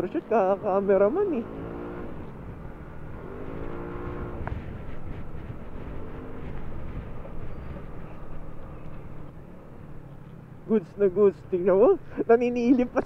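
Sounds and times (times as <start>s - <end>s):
scooter engine running: 0.0s - 9.3s
wind rumble on microphone: 0.6s - 9.4s.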